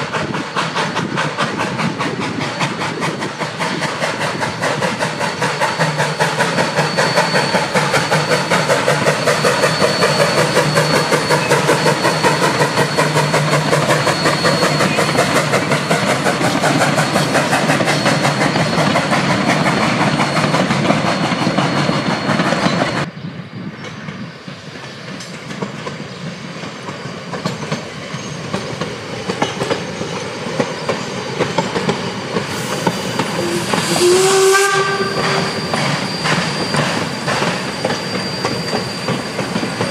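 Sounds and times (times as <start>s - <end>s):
steam locomotive chuffing: 0.0s - 39.9s
train whistle toot: 5.7s - 16.3s, 32.5s - 39.9s
wheels clattering on rails: 23.8s - 34.2s, 34.8s - 39.9s.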